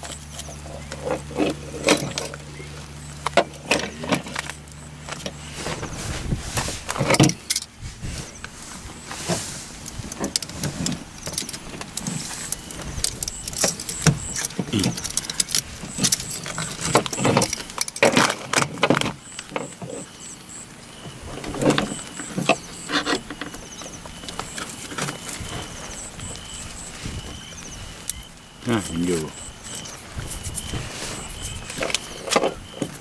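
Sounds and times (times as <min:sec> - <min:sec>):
hands handling wires and plastic: 0:08.4 - 0:19.8.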